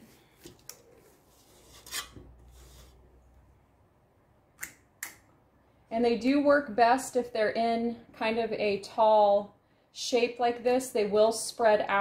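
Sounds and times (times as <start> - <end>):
metal scoop scraping in steel bowl: 1.4 - 3.0.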